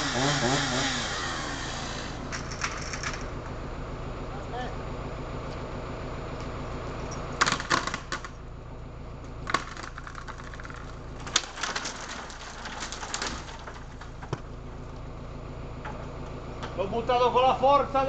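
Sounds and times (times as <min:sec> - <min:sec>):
branches cracking and snapping: 0:09.4 - 0:15.1
tree section crashing through twigs: 0:10.6 - 0:14.3.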